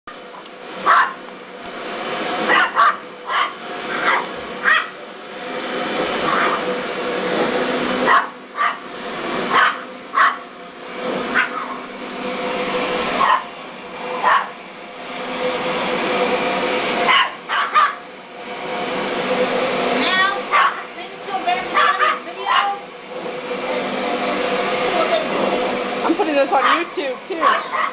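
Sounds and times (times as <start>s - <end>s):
vacuum cleaner motor hum: 0.1s - 27.9s
small dog yapping: 0.8s - 1.2s, 2.5s - 5.0s, 6.3s - 6.6s, 8.1s - 8.8s, 9.5s - 10.4s, 11.3s - 11.8s, 13.2s - 13.5s, 14.2s - 14.5s, 17.1s - 18.0s, 20.5s - 20.8s, 21.8s - 22.7s, 27.4s - 27.9s.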